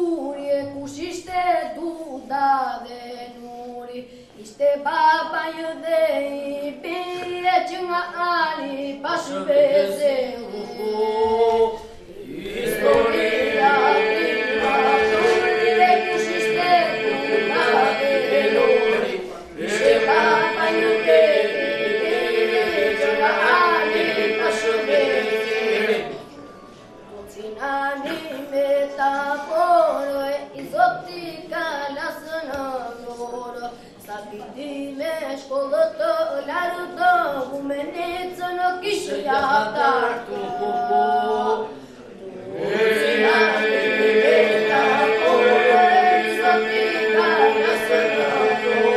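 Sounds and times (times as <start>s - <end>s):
children singing: 9.2s - 26.3s, 38.8s - 48.9s.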